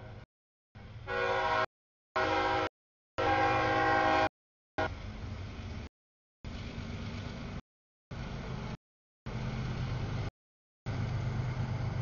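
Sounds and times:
train running through crossing: 0:00.8 - 0:05.9, 0:06.6 - 0:10.3, 0:10.9 - 0:12.0
locomotive air horn blasts: 0:01.0 - 0:04.9.

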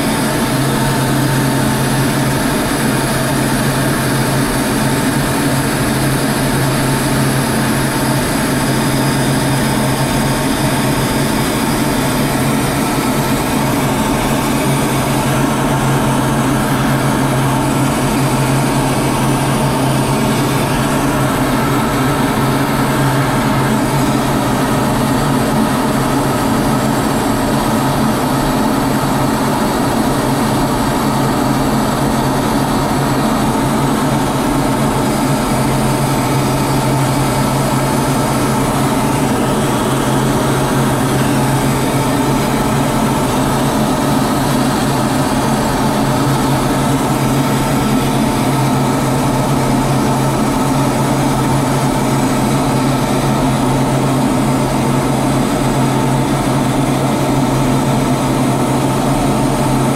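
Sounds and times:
aircraft engine drone in cockpit: 0:00.0 - 0:59.9.

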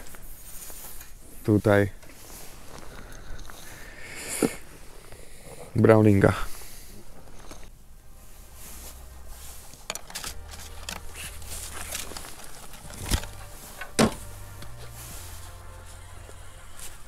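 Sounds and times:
fishing tackle clicks and rattles: 0:09.8 - 0:14.0.

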